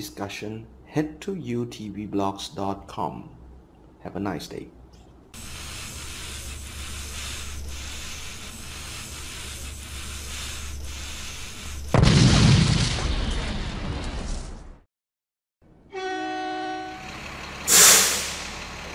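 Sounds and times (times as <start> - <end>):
loud explosion: 11.9 - 14.3.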